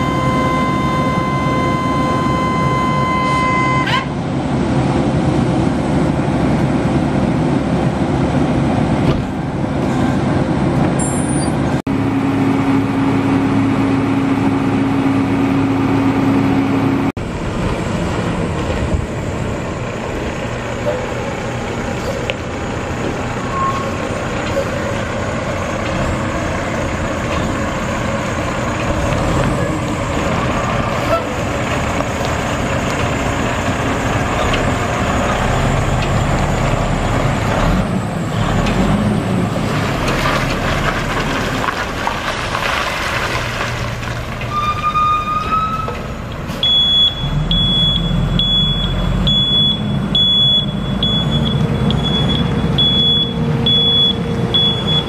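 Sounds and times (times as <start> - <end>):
high-pitched warning beeps: 0.0 - 3.9, 46.6 - 55.0
diesel truck engine running: 0.0 - 44.6, 45.4 - 55.0.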